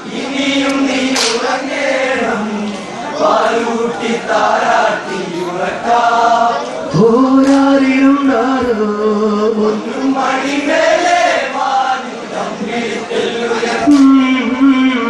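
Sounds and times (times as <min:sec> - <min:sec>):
men singing in chorus: 0:00.0 - 0:15.0
man singing long held note: 0:06.9 - 0:10.4, 0:13.7 - 0:15.0.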